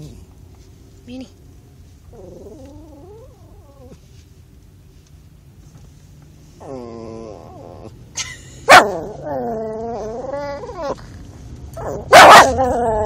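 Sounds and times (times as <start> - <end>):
dog whining: 2.1 - 4.0, 6.6 - 8.0, 8.7 - 11.2, 11.8 - 13.0
small dog barking: 8.7 - 9.0, 11.8 - 12.6.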